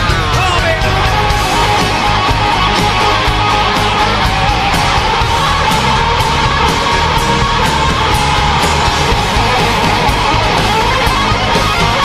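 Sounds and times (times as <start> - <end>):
electric guitar lead line: 0.0 - 12.0
rock band playing: 0.0 - 12.0.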